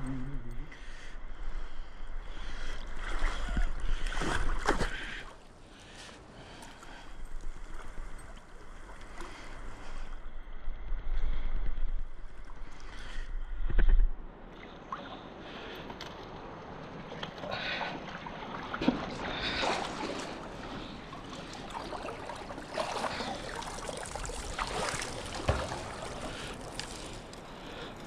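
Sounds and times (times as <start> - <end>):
water splashing from swimming: 17.0 - 28.0.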